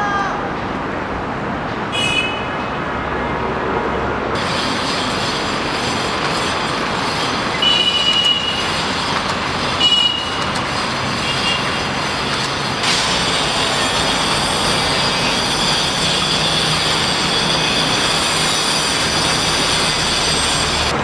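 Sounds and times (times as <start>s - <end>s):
rushing urban noise: 0.0s - 21.0s
high-pitched squeals: 4.4s - 21.0s.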